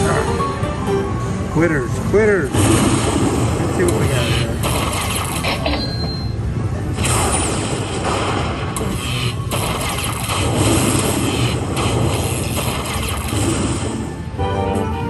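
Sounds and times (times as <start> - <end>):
slot machine electric zapping: 2.5 - 6.0, 7.0 - 14.2.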